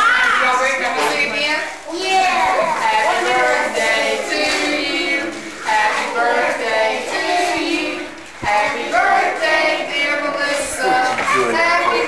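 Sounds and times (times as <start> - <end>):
children singing: 1.9 - 12.0
woman singing: 2.8 - 12.0.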